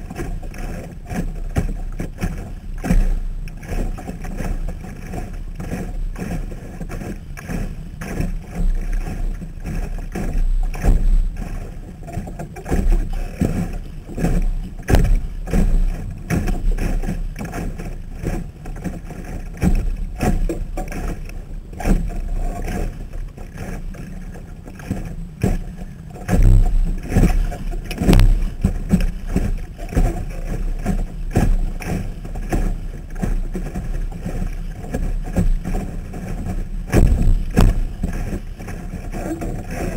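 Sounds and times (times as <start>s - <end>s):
water slapping against hull: 0.0s - 39.9s
muffled low rumble: 12.8s - 17.1s, 25.6s - 32.8s, 34.5s - 39.9s.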